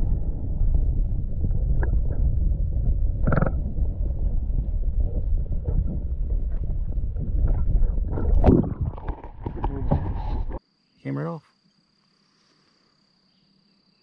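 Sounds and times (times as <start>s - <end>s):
wind buffeting microphone: 0.0s - 10.6s.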